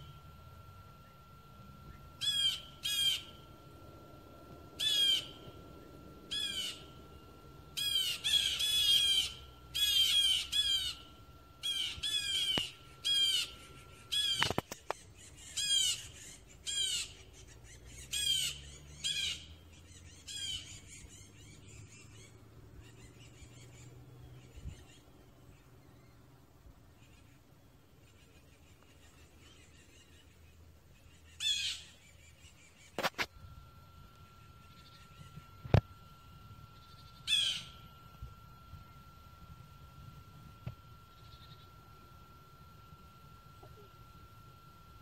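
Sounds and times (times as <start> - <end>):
blue jay harsh calls: 2.2 - 3.4, 4.8 - 5.4, 6.3 - 6.9, 7.8 - 25.1, 31.1 - 33.0, 36.8 - 37.8.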